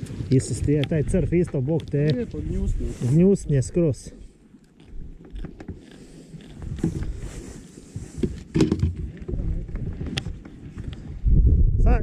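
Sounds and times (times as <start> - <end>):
low rumbling wind: 0.0 - 12.0
microphone handling noise: 4.8 - 12.0.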